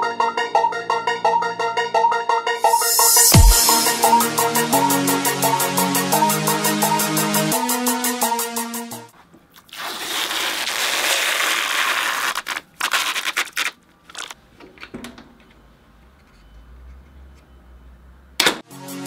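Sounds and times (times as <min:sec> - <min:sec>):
plastic film peeling: 0:09.6 - 0:14.4.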